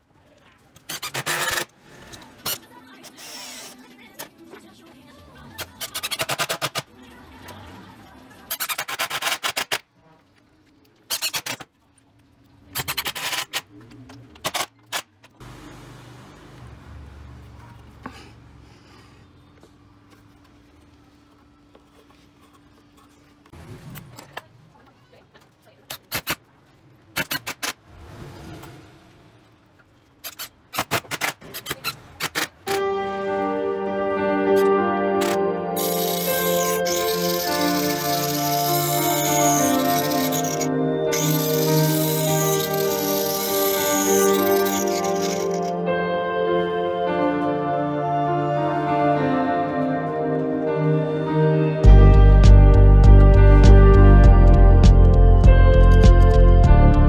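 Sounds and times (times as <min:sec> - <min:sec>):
clicks and knocks from drill and wood: 0:00.8 - 0:03.7
impact driver driving screws: 0:00.9 - 0:01.7, 0:08.5 - 0:09.8, 0:35.8 - 0:45.7
drill motor whirr: 0:01.0 - 0:01.7, 0:03.0 - 0:03.8, 0:35.2 - 0:45.7.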